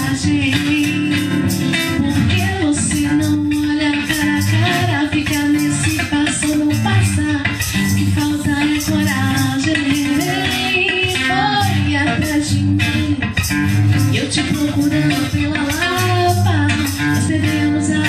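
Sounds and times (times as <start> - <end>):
electric guitar: 0.0 - 18.0
woman singing: 0.0 - 18.0.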